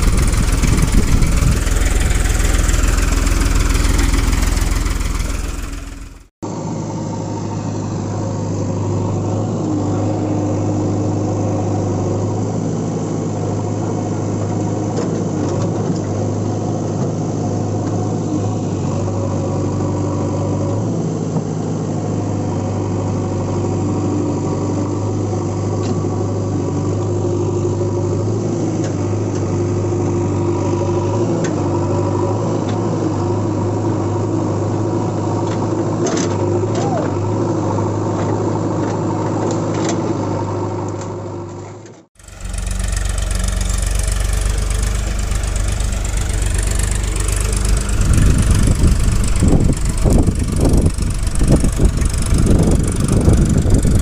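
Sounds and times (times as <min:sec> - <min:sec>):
tractor engine idling: 0:00.0 - 0:06.3, 0:42.2 - 0:54.0.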